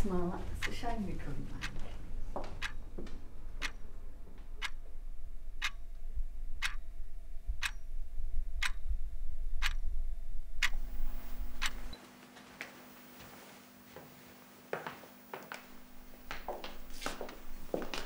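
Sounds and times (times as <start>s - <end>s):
clock ticking: 0.0s - 4.9s, 5.6s - 5.9s, 6.6s - 6.8s, 7.5s - 7.8s, 8.6s - 8.8s, 9.6s - 9.8s, 10.6s - 12.0s
low rumble: 3.2s - 12.0s.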